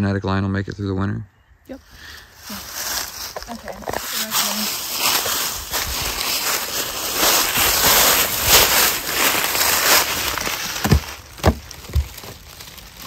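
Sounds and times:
dull knocks on wooden boxes: 10.8s - 12.1s.

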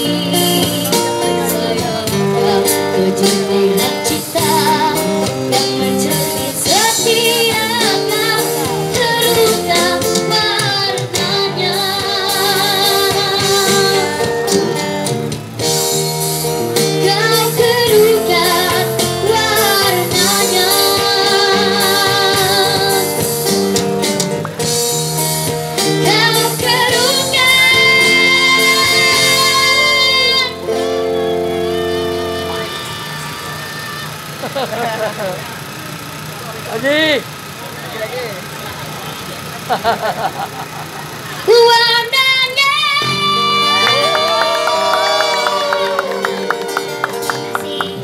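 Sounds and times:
girl singing through speaker: 0.0s - 15.1s, 17.0s - 23.3s, 26.0s - 30.8s, 41.4s - 44.4s, 45.0s - 48.0s
acoustic guitar: 0.0s - 48.0s
keyboard: 0.0s - 48.0s.

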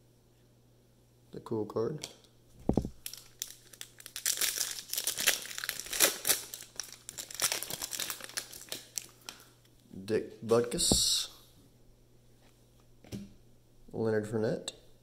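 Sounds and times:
wrapper crackling and tearing: 3.0s - 9.4s
low thump: 10.8s - 11.2s.

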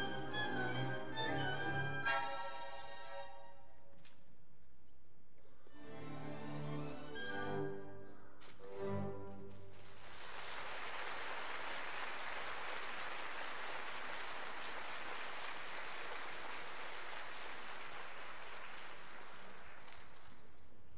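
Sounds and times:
audience applauding: 9.7s - 20.9s.

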